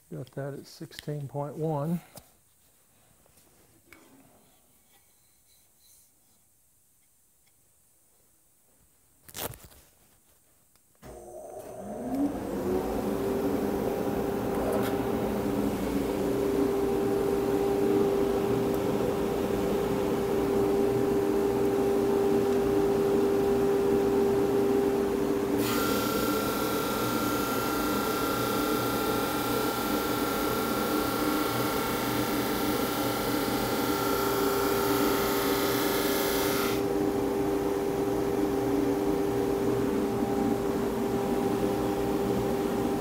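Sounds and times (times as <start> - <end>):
drum sander running: 11.4 - 37.0
conveyor belt whine with hiss: 12.2 - 43.0.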